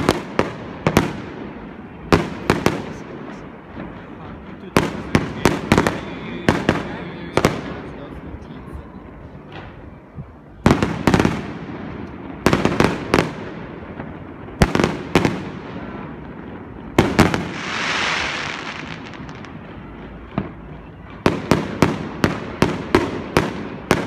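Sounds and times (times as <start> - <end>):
fireworks bangs: 0.0 - 24.0
fireworks hissing crackle: 10.8 - 24.0.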